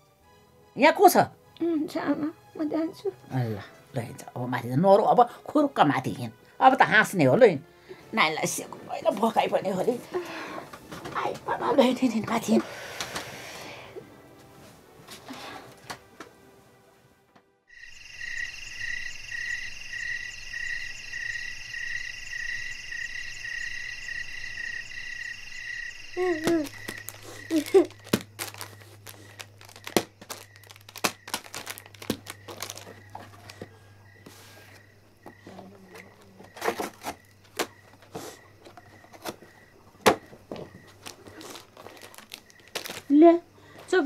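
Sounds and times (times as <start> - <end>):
night insects chirring: 2.3 - 14.0, 17.7 - 44.0
child's voice: 26.2 - 26.8
wrappers crinkling: 26.2 - 34.8, 35.5 - 38.2, 40.5 - 43.3.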